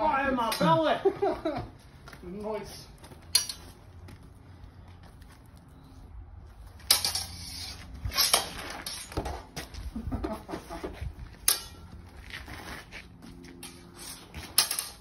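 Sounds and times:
swords clashing: 3.3 - 3.8, 6.8 - 9.3, 11.4 - 12.0, 13.6 - 15.0.

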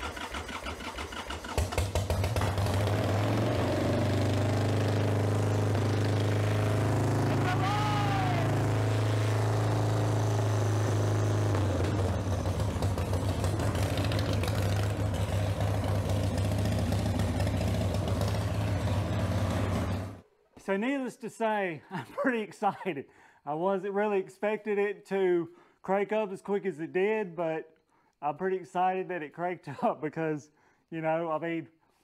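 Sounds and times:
motorcycle engine idling: 0.0 - 3.3, 3.9 - 20.2.

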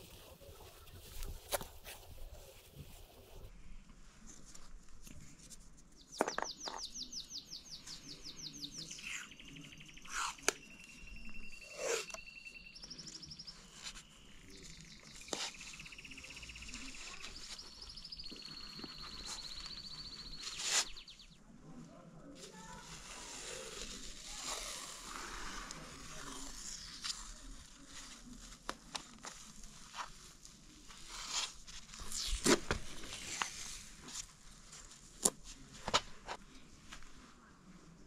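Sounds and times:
songbird trilling: 6.1 - 21.3.

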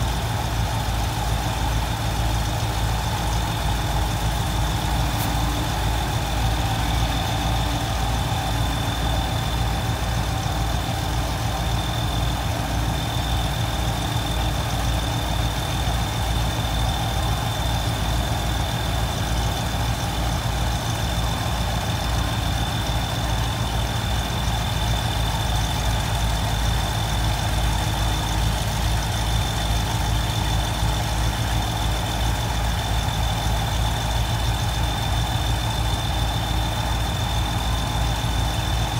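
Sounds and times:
heavy engines rumbling: 0.0 - 38.9.

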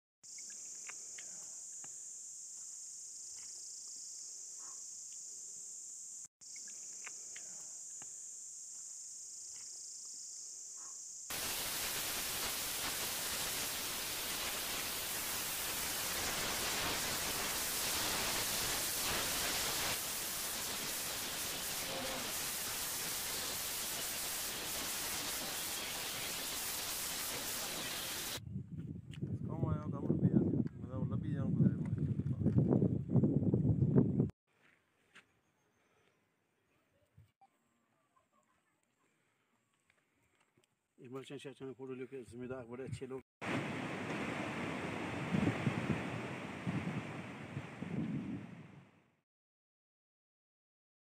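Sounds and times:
high-pitched insect drone: 0.3 - 28.4
even hiss of noise: 5.3 - 28.4.

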